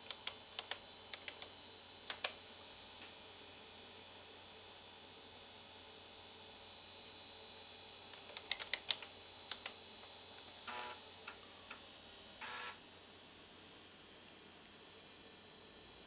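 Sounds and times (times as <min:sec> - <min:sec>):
keyboard keystrokes: 0:00.0 - 0:01.5, 0:08.2 - 0:09.8.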